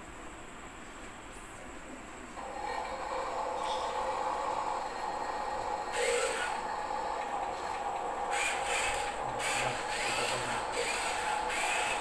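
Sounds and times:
short rising whirs: 0:02.4 - 0:12.0
toy electric motors whining: 0:02.4 - 0:12.0
toy truck rubbing on wood: 0:05.9 - 0:06.6, 0:08.3 - 0:12.0.

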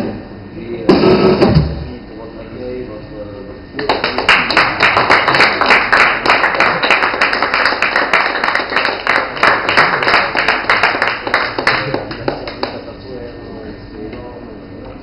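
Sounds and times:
audience applauding: 0:03.8 - 0:12.9.

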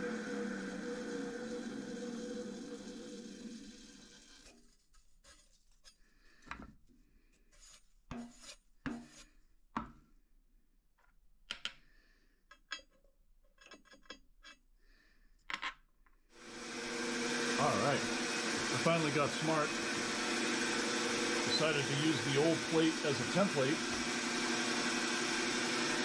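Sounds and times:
metallic clicks and scrapes of swarf: 0:12.5 - 0:14.7.

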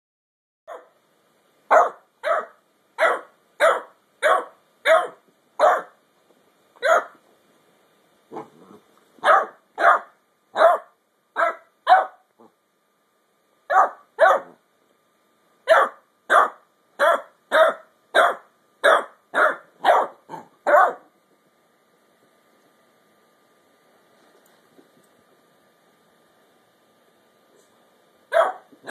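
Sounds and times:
puppy barking: 0:00.7 - 0:01.0, 0:01.7 - 0:06.0, 0:06.8 - 0:07.2, 0:09.2 - 0:12.5, 0:13.7 - 0:14.6, 0:15.7 - 0:21.1, 0:28.3 - 0:28.9.

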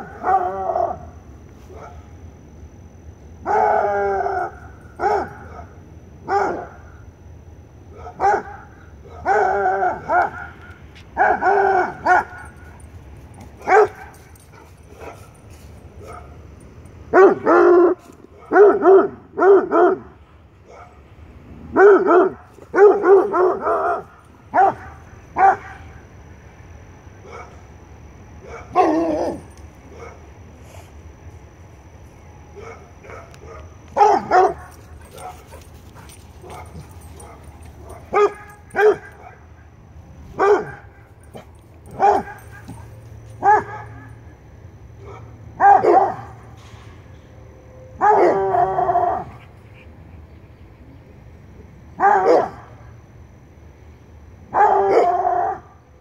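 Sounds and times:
hound baying: 0:08.0 - 0:10.6, 0:11.2 - 0:16.3, 0:21.7 - 0:25.8, 0:28.4 - 0:30.2, 0:32.6 - 0:39.4, 0:40.4 - 0:44.2.

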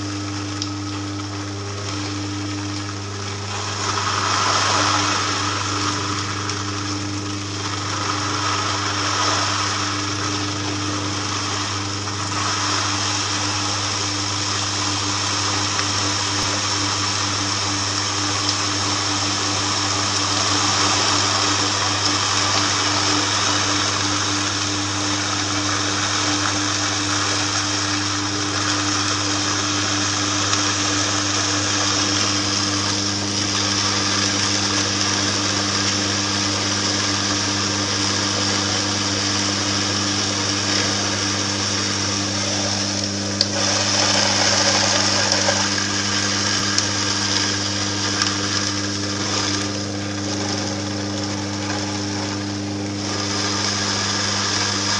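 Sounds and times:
juicer motor humming: 0:00.0 - 0:54.9
gritty grinding: 0:40.5 - 0:54.9.

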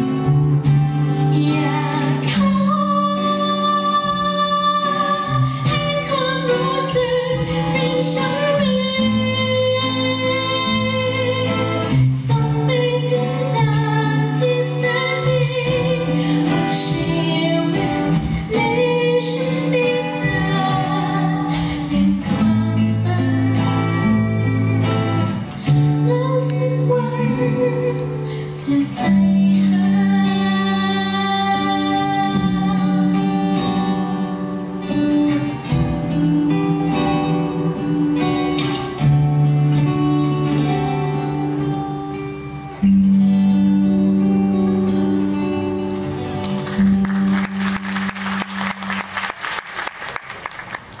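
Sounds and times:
woman singing: 0:01.2 - 0:34.5, 0:36.3 - 0:39.2.

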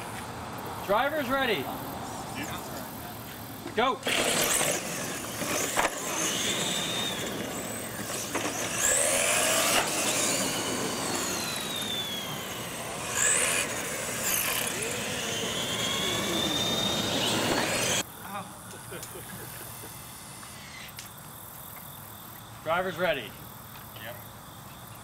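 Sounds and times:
tyre noise on concrete: 0:02.5 - 0:18.0
toy truck motors whining: 0:03.9 - 0:18.1, 0:19.3 - 0:21.2.

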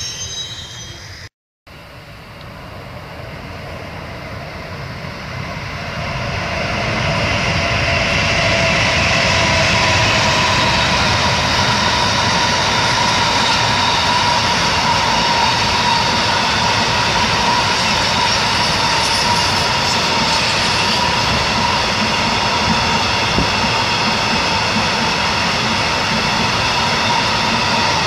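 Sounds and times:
high-pitched ringing tones: 0:00.0 - 0:01.3, 0:09.3 - 0:28.0
freight train wheels rumbling: 0:02.4 - 0:28.0.

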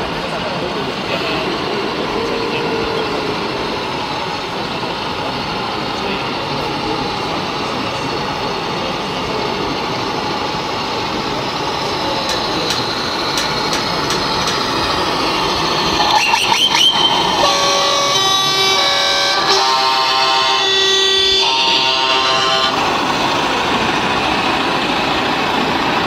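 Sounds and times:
busy exhibition hall din: 0:00.0 - 0:26.0
short horn-like blasts: 0:17.4 - 0:22.8.

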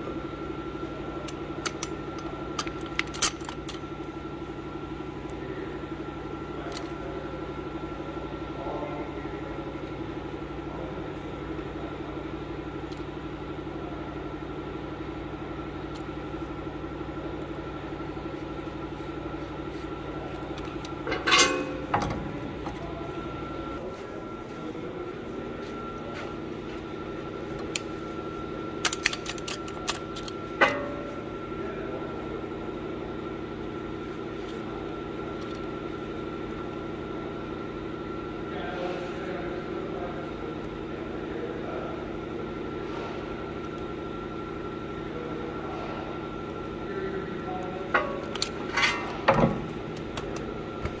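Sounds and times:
shop machinery hum: 0:00.0 - 0:51.0
metallic clicks and clanks: 0:20.6 - 0:22.8.

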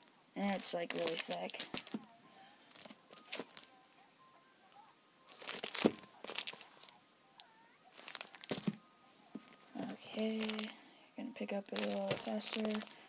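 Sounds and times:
plastic bags crinkling: 0:00.0 - 0:02.0, 0:02.7 - 0:03.7, 0:05.3 - 0:06.9, 0:07.9 - 0:08.8, 0:09.5 - 0:10.9, 0:11.7 - 0:13.0
faint music: 0:00.0 - 0:13.0.

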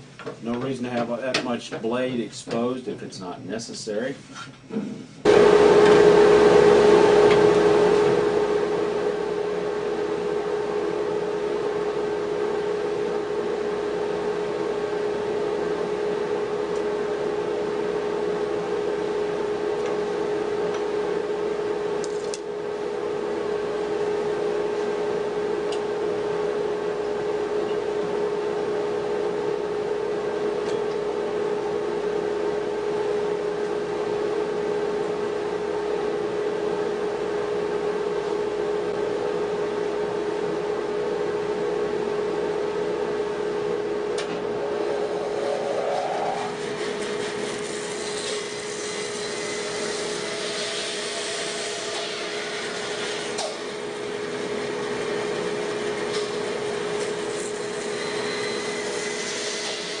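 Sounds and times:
bandsaw humming: 0:44.0 - 1:00.0
saw blade cutting wood: 0:44.6 - 0:53.6.

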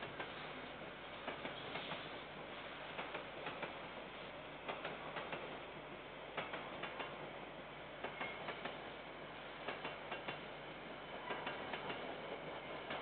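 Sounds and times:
distant freight train rolling: 0:00.0 - 0:13.0
wheels clicking over rail joints: 0:09.6 - 0:10.5, 0:11.2 - 0:13.0.

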